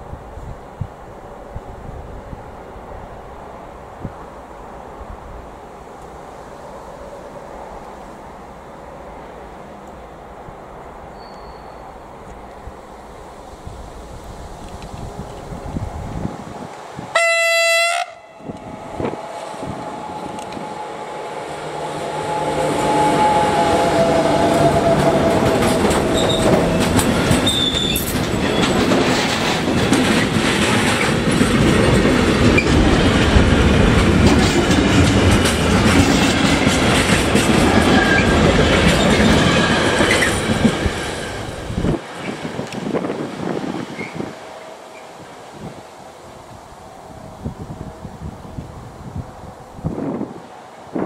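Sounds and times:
freight train rolling past: 0:00.0 - 0:51.0
locomotive horn blast: 0:17.1 - 0:26.6
wheels clattering over rail joints: 0:24.8 - 0:44.2.

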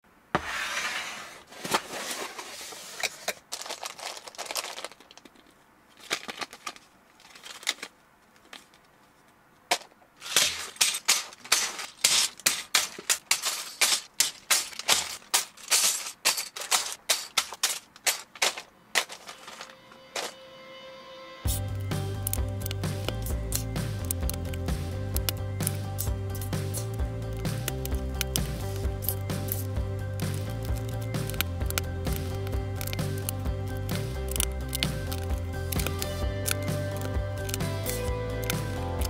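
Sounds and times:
cardboard box rustling: 0:00.4 - 0:05.0
plastic pieces clattering: 0:01.6 - 0:08.9, 0:09.7 - 0:20.4, 0:25.2 - 0:39.0
plastic bags dropped onto table: 0:03.2 - 0:05.4, 0:09.7 - 0:20.4.

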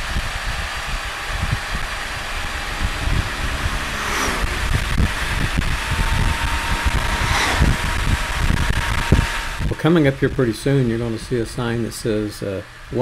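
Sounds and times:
wind buffeting thumps: 0:00.0 - 0:11.8
wind rush and road noise: 0:00.0 - 0:12.2
passing vehicle whoosh: 0:00.3 - 0:09.9.

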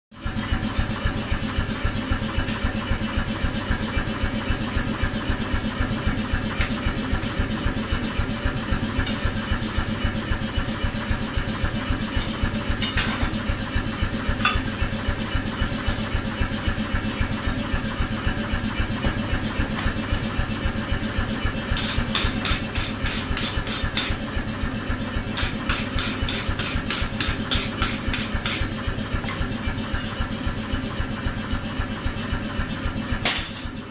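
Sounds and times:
pulsing machine drone: 0:00.2 - 0:33.9
hammer blows on anvil: 0:33.2 - 0:33.8.

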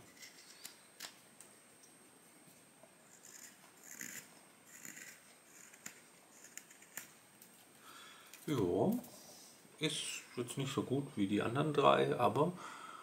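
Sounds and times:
knife scraping wood: 0:03.1 - 0:07.1.

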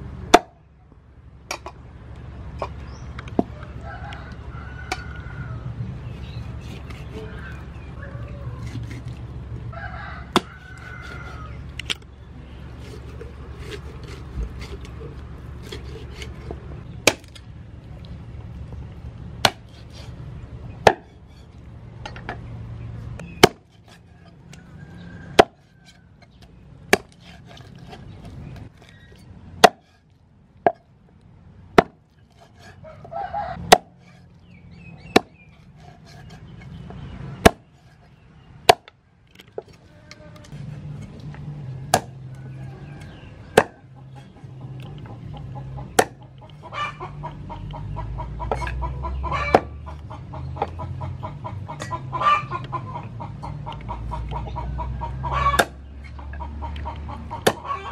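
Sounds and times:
cleaver chopping on wooden block: 0:10.3 - 0:11.4, 0:19.4 - 0:19.8, 0:20.8 - 0:21.2, 0:23.3 - 0:24.0, 0:25.3 - 0:25.7, 0:26.9 - 0:28.0, 0:29.6 - 0:30.0, 0:30.6 - 0:30.8, 0:31.8 - 0:32.8, 0:33.6 - 0:34.2, 0:35.0 - 0:37.9, 0:38.7 - 0:39.0, 0:41.9 - 0:42.2, 0:43.6 - 0:43.9, 0:45.8 - 0:46.3, 0:49.5 - 0:49.8, 0:55.5 - 0:55.8, 0:57.4 - 0:57.7.

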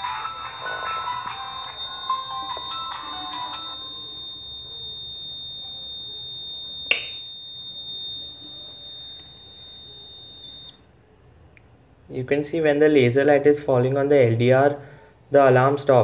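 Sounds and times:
high-pitched alarm buzzer: 0:00.0 - 0:10.8
sharp click: 0:06.9 - 0:07.2.

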